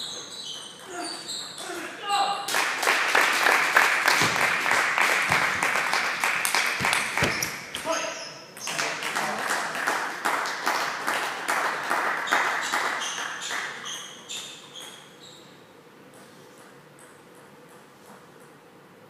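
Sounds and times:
quiet hall hum: 0.0 - 19.0
spectators clapping: 2.5 - 7.7, 8.6 - 13.8
table tennis ball bouncing: 4.1 - 4.6, 6.7 - 7.9.

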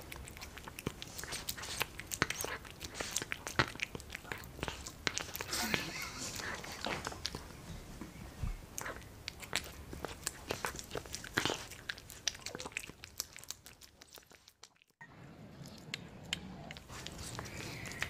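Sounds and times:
cat chewing food: 0.0 - 7.6, 8.6 - 18.0.

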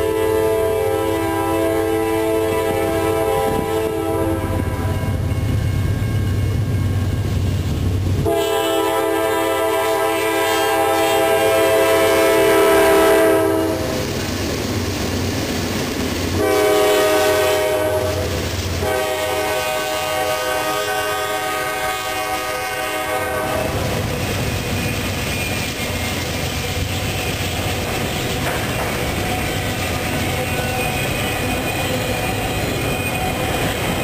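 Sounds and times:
train air horn blasts: 0.0 - 5.7, 8.2 - 14.0, 16.4 - 24.0.

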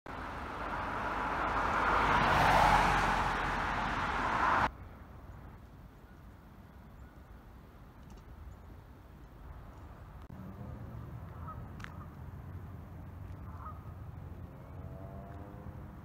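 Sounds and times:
car passing: 0.1 - 4.7, 12.4 - 16.0
faint outdoor background: 0.1 - 16.0.

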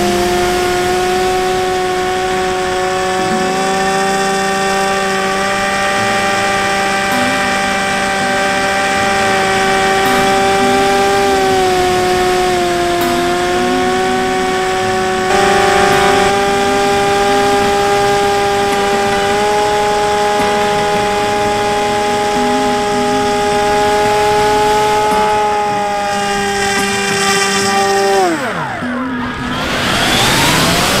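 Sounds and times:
electric propeller motor whine: 0.0 - 31.0
rushing air hiss: 15.2 - 19.0.

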